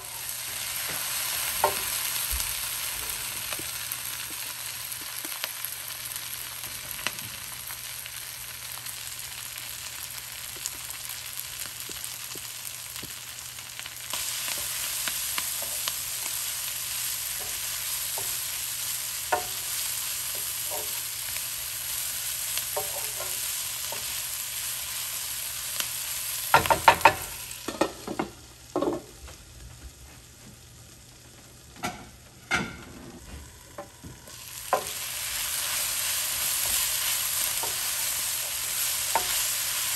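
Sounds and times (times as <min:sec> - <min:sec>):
vegetables sizzling in oil: 0:00.0 - 0:32.5, 0:33.2 - 0:39.9
spatula tapping and scraping pan: 0:19.3 - 0:21.0, 0:22.7 - 0:24.1, 0:26.5 - 0:28.9, 0:39.1 - 0:39.5.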